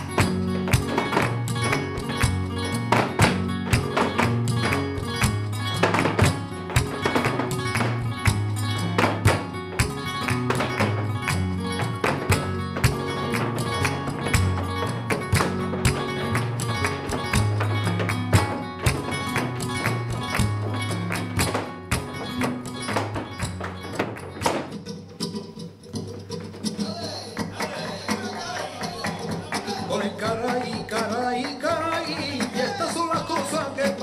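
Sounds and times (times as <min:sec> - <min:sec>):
dance footwork on wooden floor: 0:00.0 - 0:24.9
flamenco music: 0:00.0 - 0:34.0.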